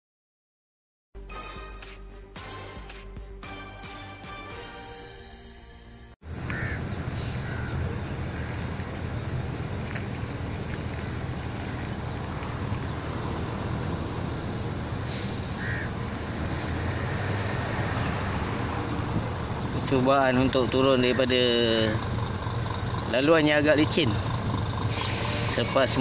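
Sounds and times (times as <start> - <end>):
diesel engine rumbling: 5.9 - 26.0
bird calls: 6.5 - 9.8, 10.7 - 23.0.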